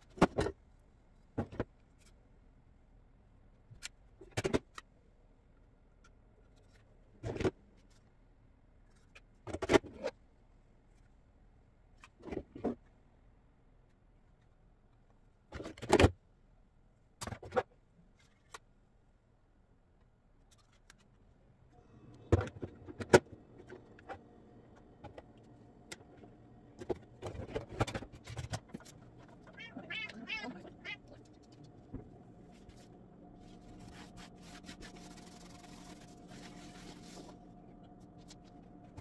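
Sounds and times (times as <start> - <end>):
faint steady hum: 18.9 - 39.0.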